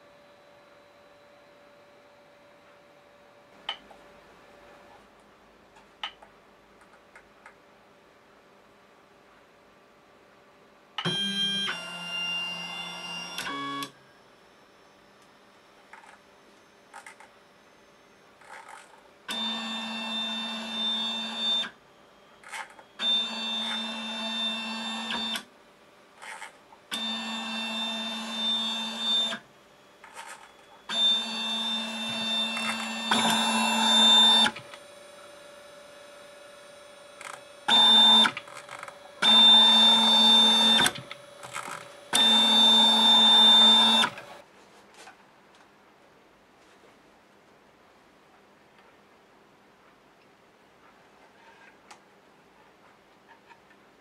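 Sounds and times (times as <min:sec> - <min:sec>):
stepper motor whine: 0:26.9 - 0:44.4.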